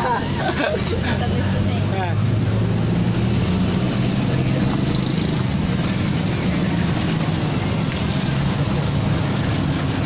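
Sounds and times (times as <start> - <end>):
street traffic: 0.0 - 10.0
vehicle engine humming: 0.0 - 10.0.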